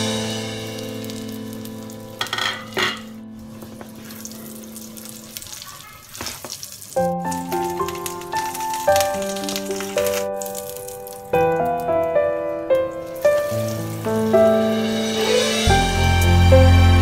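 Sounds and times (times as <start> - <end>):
background music: 0.0 - 5.2, 7.0 - 17.0
egg sizzling in oil: 0.1 - 11.9, 12.8 - 16.5
lid and spatula clattering: 2.2 - 3.2.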